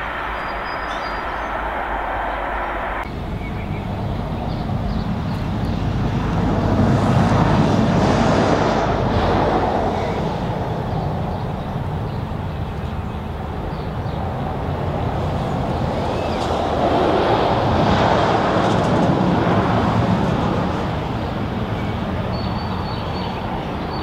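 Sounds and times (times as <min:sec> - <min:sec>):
distant diesel locomotive rumble: 0:00.0 - 0:24.0
wind buffeting microphone: 0:00.0 - 0:24.0.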